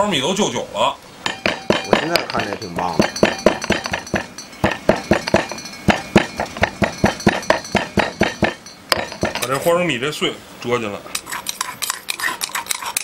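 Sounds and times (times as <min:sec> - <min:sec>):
pestle pounding in stone mortar: 0:01.3 - 0:09.6.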